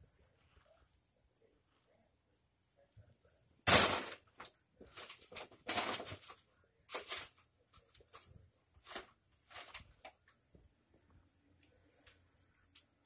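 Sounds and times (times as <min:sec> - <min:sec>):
paper and plastic bags rustling: 0:05.0 - 0:07.4.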